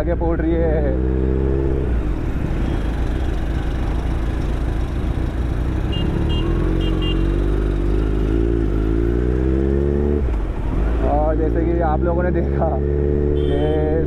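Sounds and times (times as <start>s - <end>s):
motorcycle engine accelerating: 3.0s - 11.4s.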